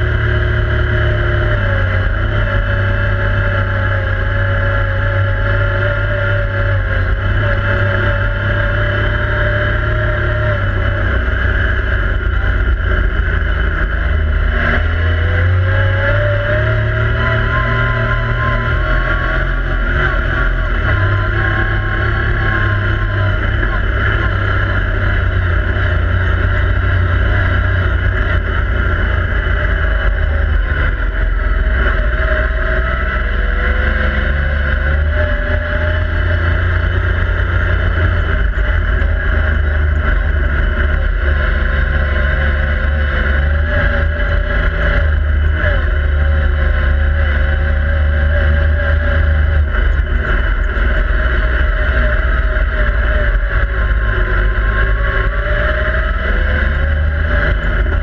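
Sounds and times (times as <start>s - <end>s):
three-cylinder engine running: 0.0s - 58.0s
wind and road noise: 0.0s - 58.0s.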